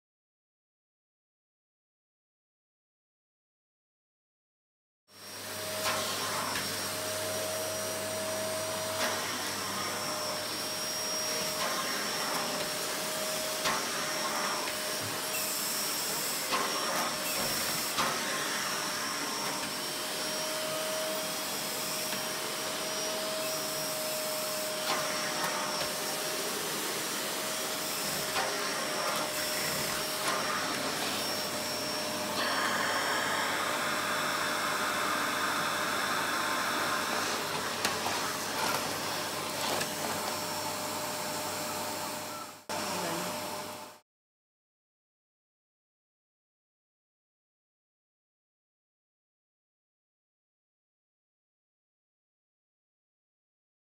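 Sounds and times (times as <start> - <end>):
vacuum cleaner running: 5.1 - 44.0.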